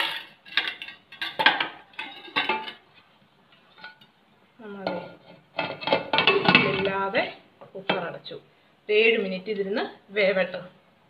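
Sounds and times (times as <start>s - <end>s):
pot lid clattering: 0.0s - 2.8s, 4.9s - 7.0s.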